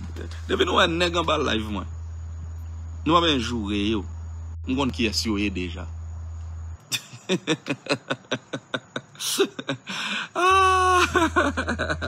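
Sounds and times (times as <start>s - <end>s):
electrical hum: 0.0s - 12.0s
man laughing: 6.9s - 12.0s.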